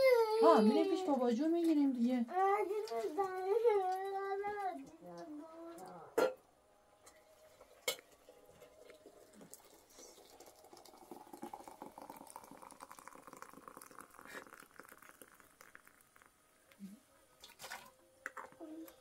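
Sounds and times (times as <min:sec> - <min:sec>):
hot liquid crackling and bubbling: 0:07.0 - 0:19.0.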